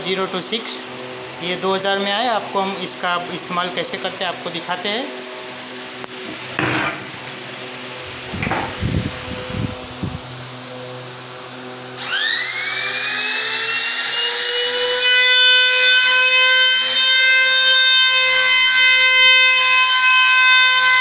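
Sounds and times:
trimmer motor whining: 0:11.6 - 0:15.0.

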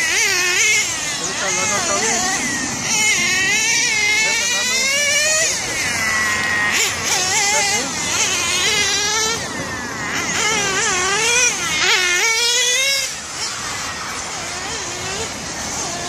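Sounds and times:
rc car motors whining: 0:00.0 - 0:16.0.

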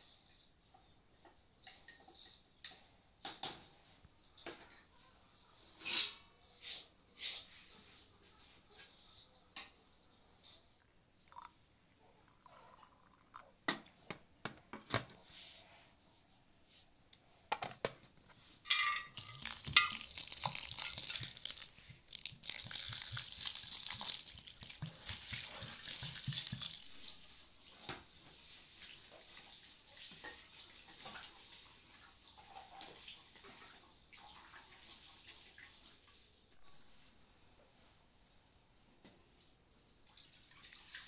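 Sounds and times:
water pouring into a steel bowl: 0:11.3 - 0:13.6, 0:19.1 - 0:27.4, 0:28.5 - 0:35.8, 0:40.0 - 0:41.0.

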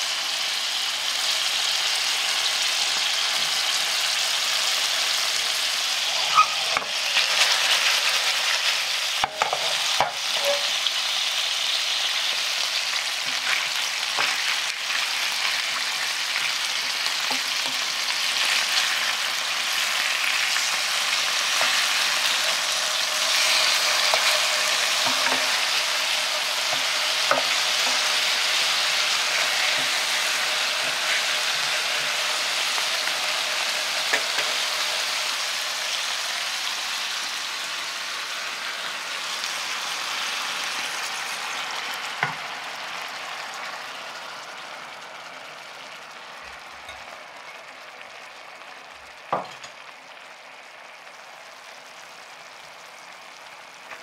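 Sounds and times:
fish sizzling in oil: 0:00.0 - 0:54.0.

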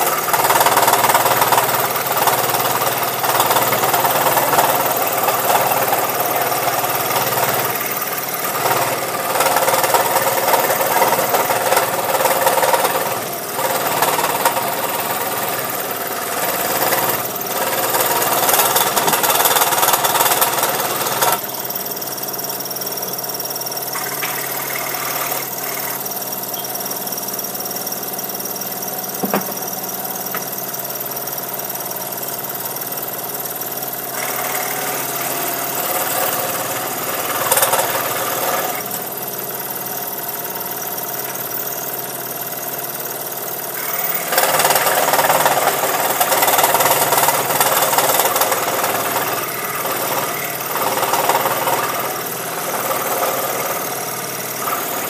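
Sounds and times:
scroll saw cutting wood: 0:00.0 - 0:21.5, 0:23.9 - 0:26.7, 0:34.1 - 0:39.2, 0:43.8 - 0:55.0.

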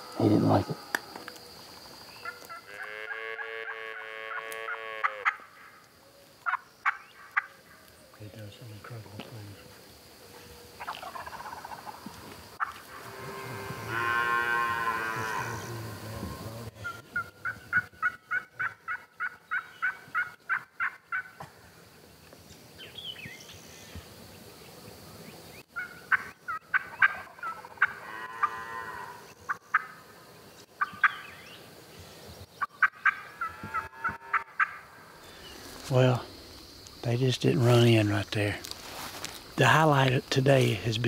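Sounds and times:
low drawn-out turkey call: 0:02.2 - 0:05.8, 0:25.8 - 0:30.0, 0:32.6 - 0:35.6
turkey yelping: 0:03.9 - 0:05.7, 0:10.8 - 0:12.0, 0:16.8 - 0:21.4, 0:25.8 - 0:28.8, 0:32.8 - 0:34.9
turkey clucks: 0:06.4 - 0:07.8, 0:10.8 - 0:12.9, 0:16.8 - 0:21.5, 0:25.8 - 0:28.5, 0:29.5 - 0:30.0, 0:32.6 - 0:34.8.

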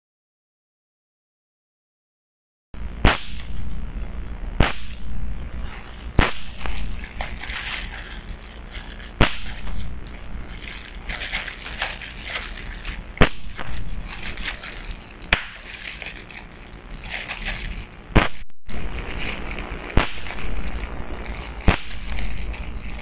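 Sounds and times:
plastic crackling: 0:05.6 - 0:23.0
bubble wrap popping: 0:06.1 - 0:23.0.

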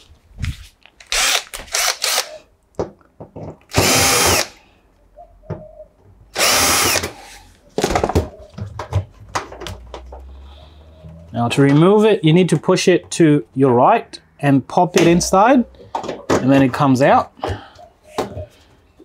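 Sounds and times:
cordless drill whining: 0:01.0 - 0:02.4, 0:03.7 - 0:04.6, 0:06.3 - 0:07.4.

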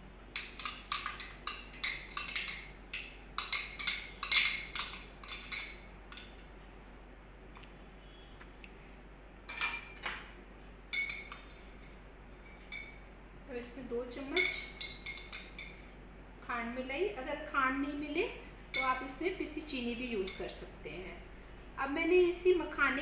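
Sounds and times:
metal spoon clinking against glass bowl: 0:00.4 - 0:06.3, 0:09.5 - 0:10.1, 0:10.9 - 0:11.6, 0:14.3 - 0:15.8, 0:18.7 - 0:19.1, 0:20.2 - 0:20.6.

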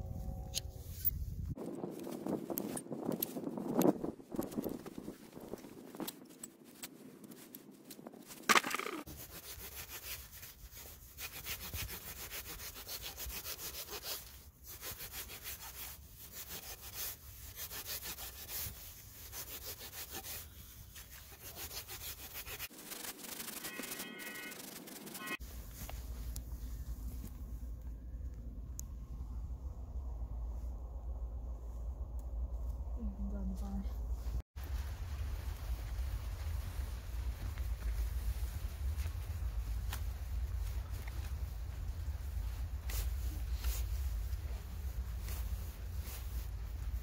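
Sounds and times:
rasp scraping a hoof: 0:08.5 - 0:25.4.

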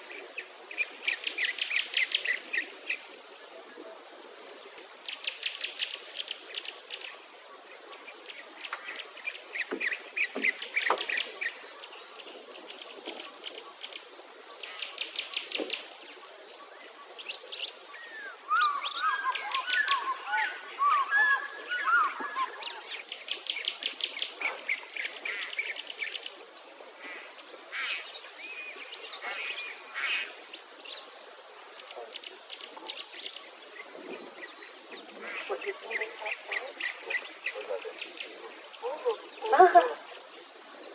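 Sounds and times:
faint high insect buzz: 0:00.0 - 0:40.9
birds chirping and trilling: 0:14.6 - 0:40.5.

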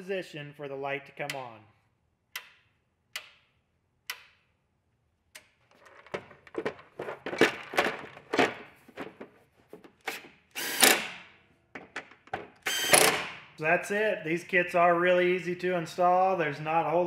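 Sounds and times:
toggle switch clicks: 0:02.3 - 0:04.4
plastic fender knocks and clatter: 0:05.9 - 0:10.0, 0:11.7 - 0:12.6
cordless impact driver burst: 0:10.1 - 0:11.3, 0:12.6 - 0:13.4.

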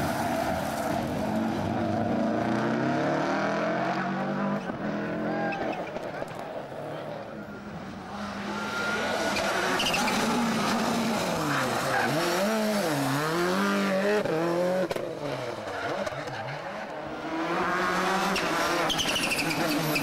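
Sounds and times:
rally car engine revving: 0:08.1 - 0:20.0.

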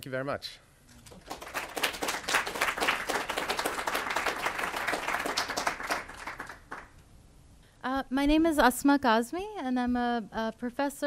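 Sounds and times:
audience applauding: 0:01.0 - 0:07.0.

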